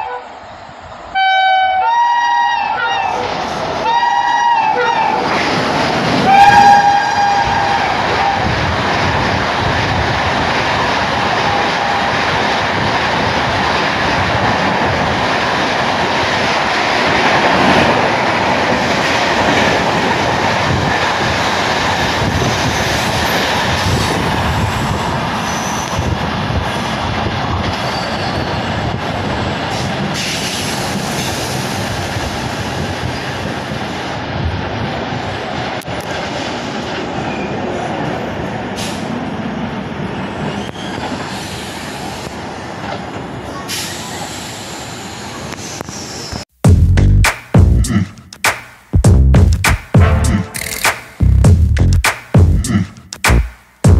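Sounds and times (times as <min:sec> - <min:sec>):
shrill locomotive horn: 0:00.0 - 0:00.3, 0:01.1 - 0:05.3, 0:06.2 - 0:08.5.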